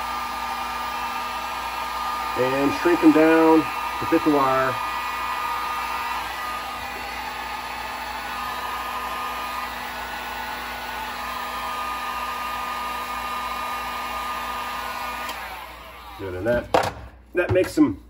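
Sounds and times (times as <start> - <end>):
heat gun blowing air: 0.0 - 16.9.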